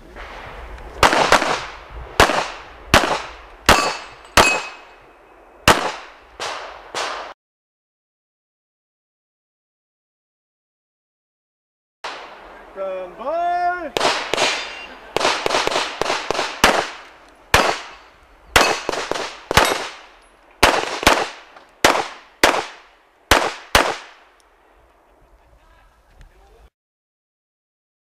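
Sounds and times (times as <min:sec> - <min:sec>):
pistol shots with echo: 0:01.0 - 0:04.9, 0:05.6 - 0:07.3, 0:14.0 - 0:24.3.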